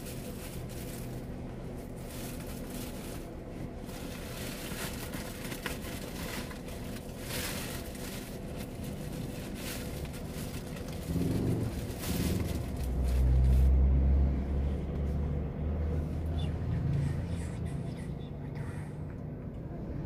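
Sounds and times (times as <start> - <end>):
car engine hum: 0.0 - 20.0.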